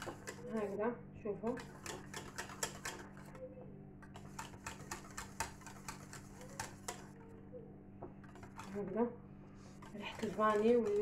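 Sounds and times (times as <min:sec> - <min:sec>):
whisk clicking against saucepan: 0:01.5 - 0:03.3, 0:04.2 - 0:07.1, 0:09.8 - 0:11.0.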